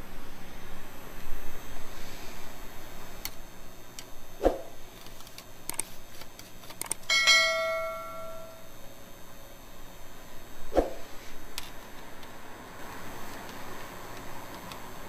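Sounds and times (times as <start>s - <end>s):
metallic ring: 7.1s - 8.8s.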